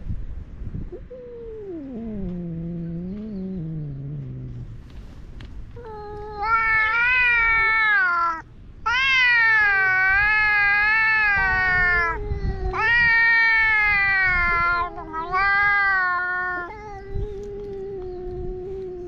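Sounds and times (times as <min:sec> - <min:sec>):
cat growling: 0:01.0 - 0:05.2, 0:05.8 - 0:19.0
cats yowling: 0:05.8 - 0:19.0.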